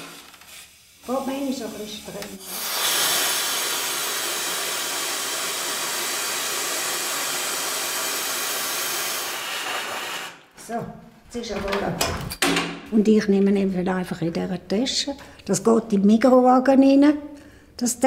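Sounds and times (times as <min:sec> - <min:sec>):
oxygen hissing: 0:00.0 - 0:10.5.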